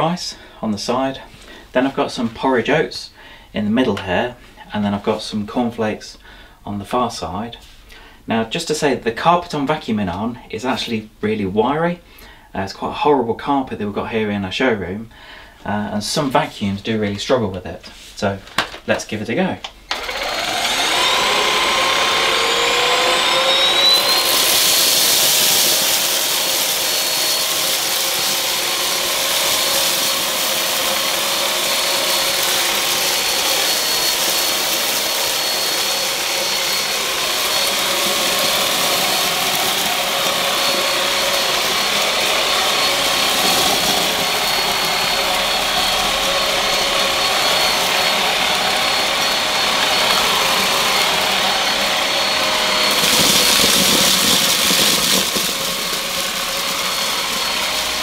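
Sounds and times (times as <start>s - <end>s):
stick vacuum motor whine: 19.6s - 58.0s
vacuum head on carpet: 19.6s - 58.0s
debris sucked up: 52.8s - 58.0s.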